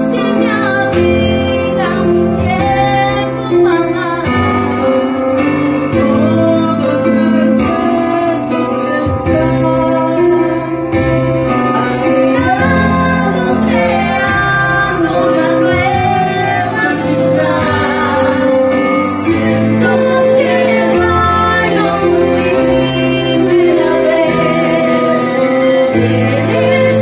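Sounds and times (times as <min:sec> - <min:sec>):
instrumental accompaniment: 0:00.0 - 0:27.0
woman singing ballad: 0:00.0 - 0:27.0.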